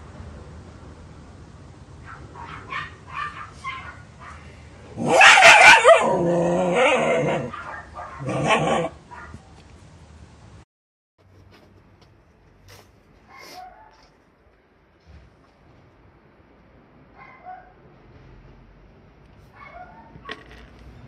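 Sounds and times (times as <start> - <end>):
dog barking and growling: 2.0 - 9.4.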